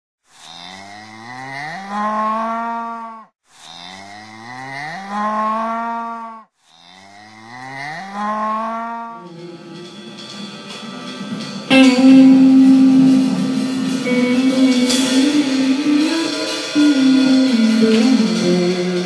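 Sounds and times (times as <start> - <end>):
cow mooing: 0.6 - 9.4.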